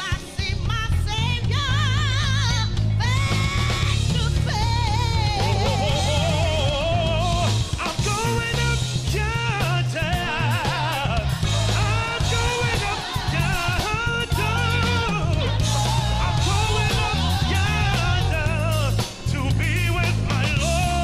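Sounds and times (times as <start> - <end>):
bass line: 0.0 - 21.0
drums: 0.0 - 21.0
man singing into microphone: 4.4 - 21.0
gospel choir singing: 4.5 - 21.0.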